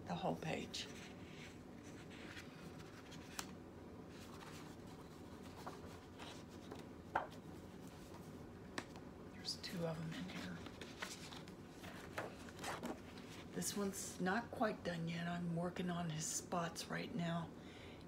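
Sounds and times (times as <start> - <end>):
paper pages rustling: 0.8 - 9.0, 10.1 - 13.5.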